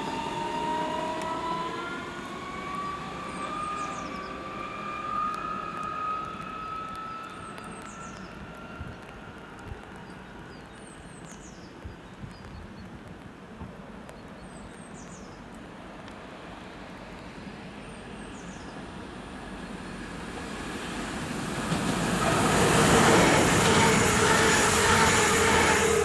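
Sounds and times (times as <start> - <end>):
traction motor whine: 0.0 - 9.9, 19.4 - 26.0
train wheels rushing on rails: 0.0 - 11.6, 15.7 - 26.0.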